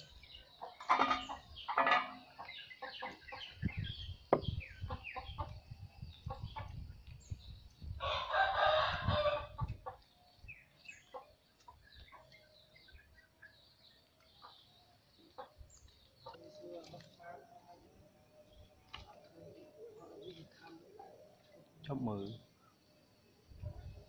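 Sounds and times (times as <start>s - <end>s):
rooster crowing: 8.0s - 9.6s.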